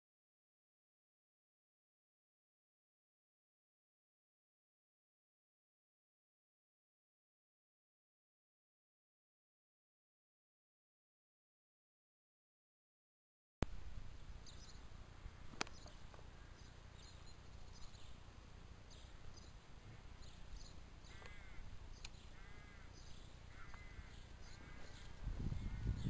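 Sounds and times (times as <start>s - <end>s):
steady low rumble: 13.6s - 26.0s
small bird chirping: 14.4s - 14.9s, 15.5s - 18.2s, 18.8s - 26.0s
crow calling: 15.3s - 16.8s, 21.0s - 26.0s.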